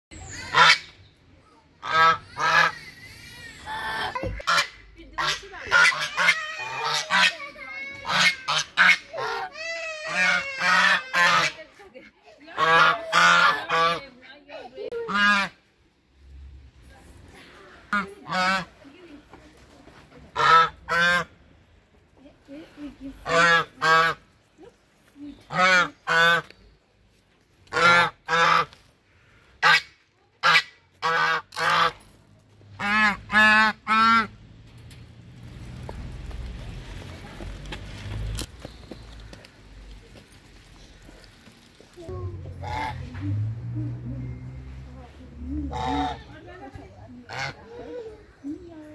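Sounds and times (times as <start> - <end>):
geese honking: 4.4 - 7.4, 8.0 - 11.6, 12.6 - 14.1, 20.4 - 21.3, 23.3 - 24.2, 25.5 - 26.5, 32.8 - 34.3, 42.6 - 43.1, 45.7 - 46.5, 47.3 - 47.6.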